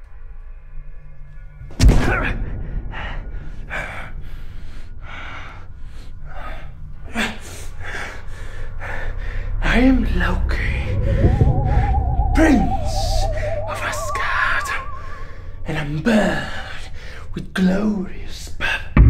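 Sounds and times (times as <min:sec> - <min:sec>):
low rumbling drone: 0:02.5 - 0:17.5
faint sustained music tones: 0:02.6 - 0:18.4
loud impact hit: 0:10.4 - 0:15.6.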